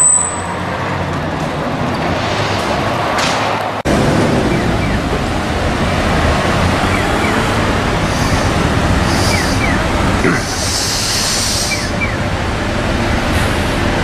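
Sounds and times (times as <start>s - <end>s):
car and bus engines: 0.0s - 14.0s
air hisses: 8.0s - 12.0s.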